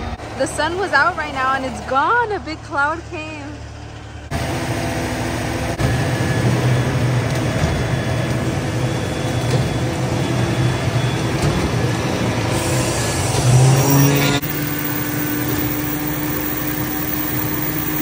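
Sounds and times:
diesel machinery running: 0.0 - 18.0.

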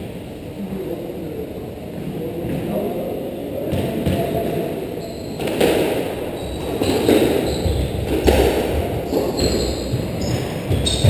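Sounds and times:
shoes squeaking on wooden floor: 5.0 - 11.0
squash ball knocking: 5.4 - 11.0.

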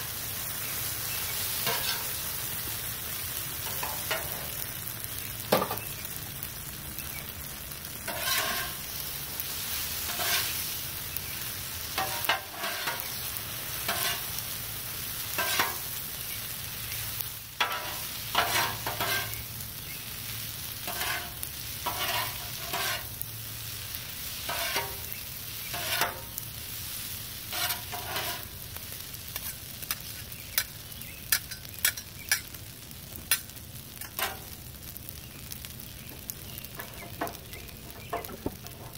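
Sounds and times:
noodles sizzling on griddle: 0.0 - 38.9
metal spatulas scraping griddle: 1.5 - 2.2, 8.1 - 8.9, 9.7 - 10.7, 12.0 - 13.2, 13.8 - 14.4, 15.3 - 15.9, 17.6 - 19.4, 20.8 - 23.1, 24.4 - 25.1, 25.7 - 26.4, 27.5 - 28.5
spatulas clacking on griddle: 1.5 - 2.2, 3.6 - 4.6, 5.5 - 5.9, 8.0 - 9.0, 10.0 - 10.6, 11.9 - 14.4, 15.3 - 16.0, 17.6 - 19.4, 20.8 - 23.1, 24.4 - 26.4, 27.5 - 28.6, 29.3 - 32.6, 33.3 - 34.6, 36.7 - 38.9.

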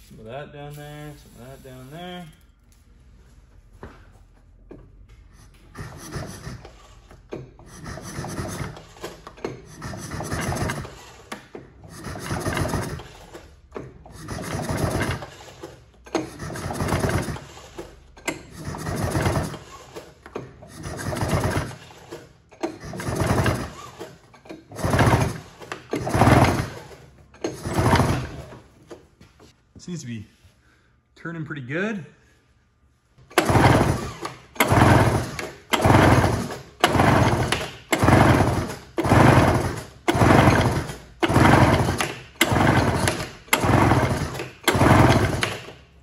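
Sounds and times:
recoil starter rattling whir: 5.6 - 29.1, 33.2 - 46.0.

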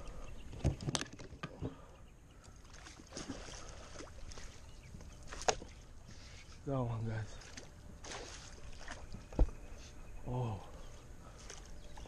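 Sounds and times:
water sloshing and splashing: 0.5 - 9.7, 10.8 - 12.0.

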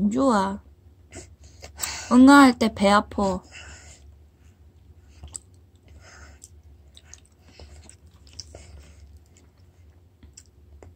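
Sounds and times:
child chewing: 4.7 - 10.9.

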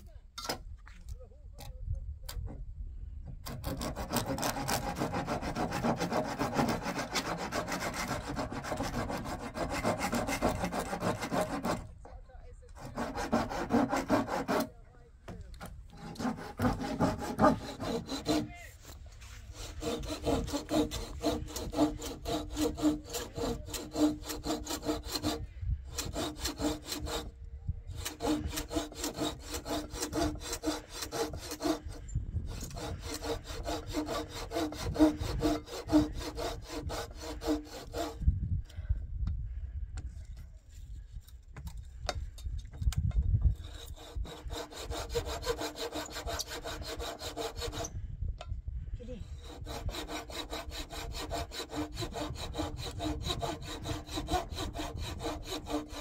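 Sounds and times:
hand saw cutting wood: 3.4 - 11.9, 12.8 - 14.8, 15.6 - 27.3, 27.9 - 38.2, 43.5 - 47.9, 49.3 - 56.0.

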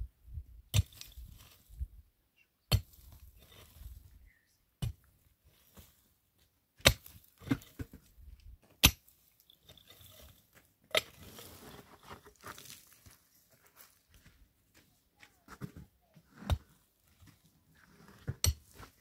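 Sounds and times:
soft scraping and rustling: 9.4 - 14.4.

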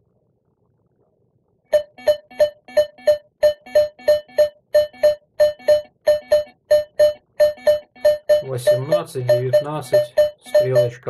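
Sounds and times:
metal detector beeping: 1.7 - 11.0.

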